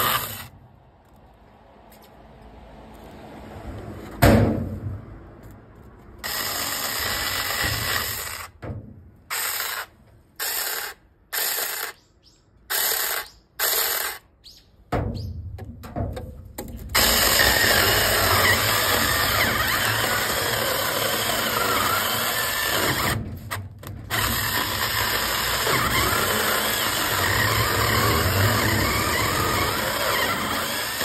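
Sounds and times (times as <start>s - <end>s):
mini chainsaw whirring: 0.0s - 0.5s, 17.0s - 23.2s, 24.1s - 31.0s
loud thump: 4.2s - 5.0s.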